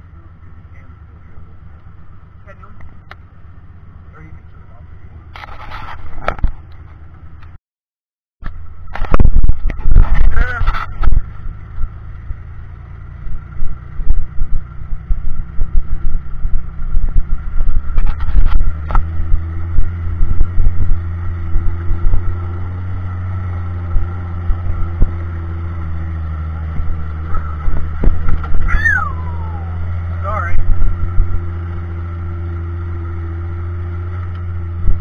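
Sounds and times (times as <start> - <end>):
engine rumbling: 0.0 - 7.6, 8.4 - 35.0.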